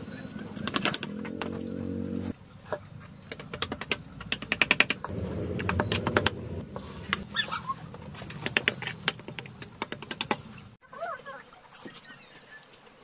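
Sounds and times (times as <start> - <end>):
trowel tapping and scraping stones: 2.7 - 5.1, 8.2 - 10.6.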